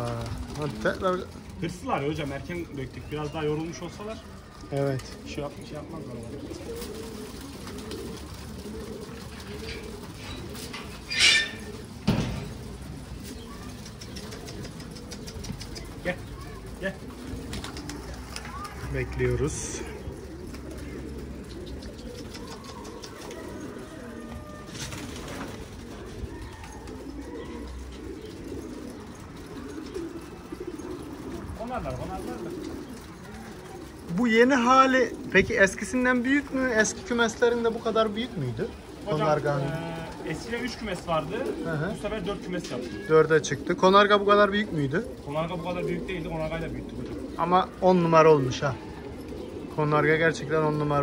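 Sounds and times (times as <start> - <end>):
pigeons cooing: 0.0 - 51.0
thump: 12.0 - 12.5.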